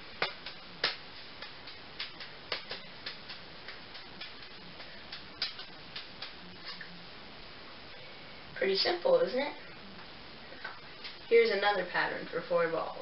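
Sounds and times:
juggling balls slapping palms: 0.0s - 6.9s.

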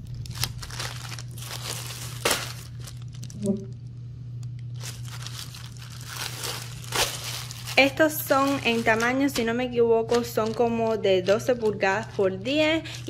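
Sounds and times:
plastic wrapping crinkling: 0.0s - 13.0s
steady low hum: 0.0s - 13.0s.

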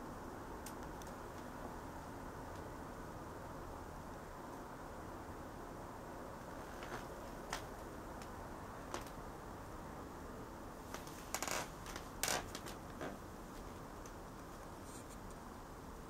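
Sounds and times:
background hiss: 0.0s - 16.0s
rustles: 6.4s - 9.2s, 10.8s - 15.6s.

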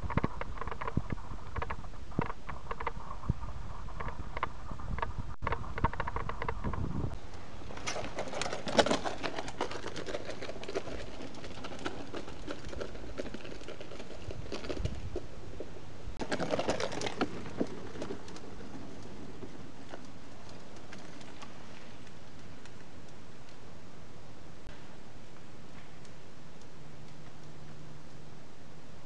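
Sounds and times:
mountain bike rattling over roots: 0.0s - 6.9s, 7.5s - 22.7s.

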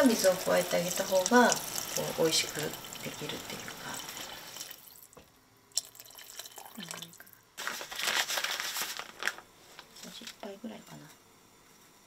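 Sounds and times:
water pouring from kettle: 0.0s - 7.4s.

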